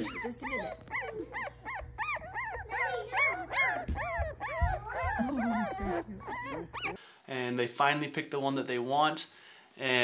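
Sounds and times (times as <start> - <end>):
puppies whining and yipping: 0.0 - 7.0.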